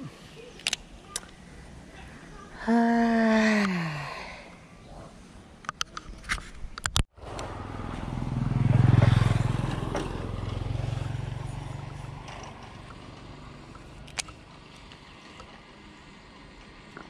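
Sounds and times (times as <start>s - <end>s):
vehicle engine hum: 7.2s - 17.0s.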